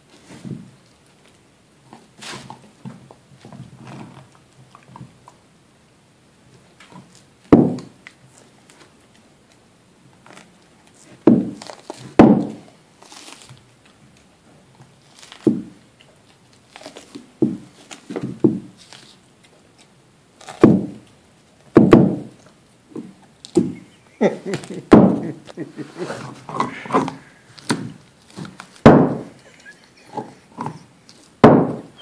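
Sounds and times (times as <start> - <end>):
dog gnawing bone: 30.0 - 31.4.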